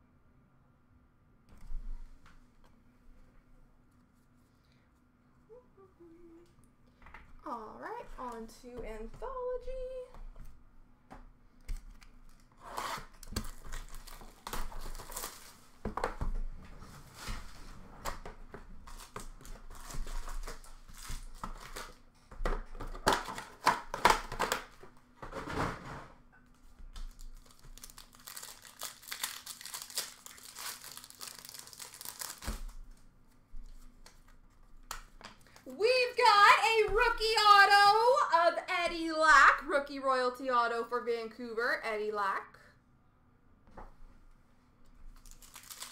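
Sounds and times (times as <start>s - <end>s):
card packs torn open: 11.8s - 15.6s, 18.8s - 22.0s, 27.0s - 32.8s, 45.1s - 45.9s
plastic wrappers crinkling: 13.1s - 16.2s, 18.8s - 22.0s, 27.0s - 33.0s, 45.1s - 45.9s.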